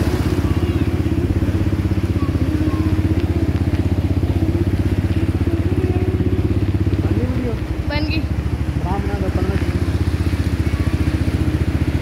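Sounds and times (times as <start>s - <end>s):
small motorcycle engine running: 0.0s - 12.0s.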